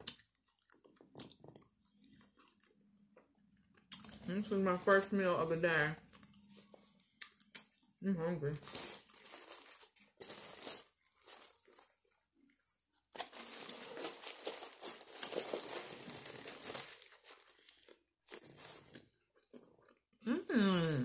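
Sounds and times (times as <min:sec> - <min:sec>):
paper wrapper crinkling: 0:08.6 - 0:12.2, 0:13.1 - 0:19.0.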